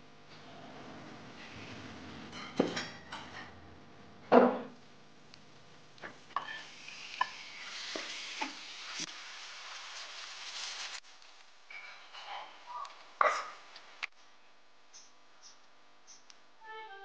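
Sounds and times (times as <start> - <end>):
chicken sizzling in hot oil: 6.3 - 11.0
wooden spatula scraping a wok: 6.3 - 11.0.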